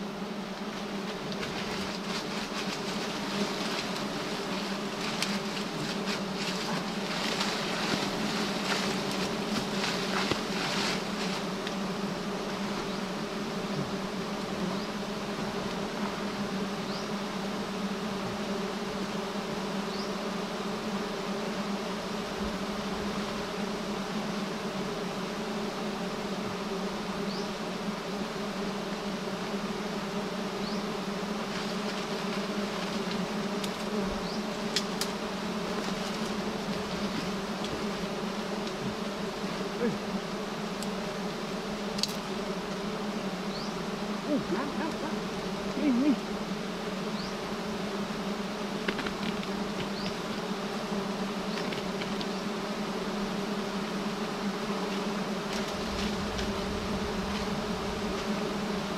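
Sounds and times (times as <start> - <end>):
bees buzzing: 0.0 - 58.9
faint ticks: 40.8 - 41.0.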